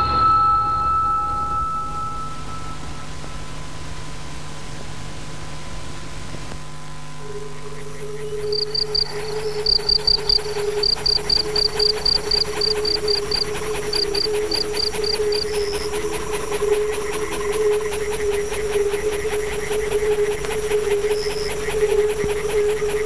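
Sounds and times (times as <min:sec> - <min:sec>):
steady low drone: 0:00.0 - 0:23.0
crickets chirping: 0:07.2 - 0:23.0.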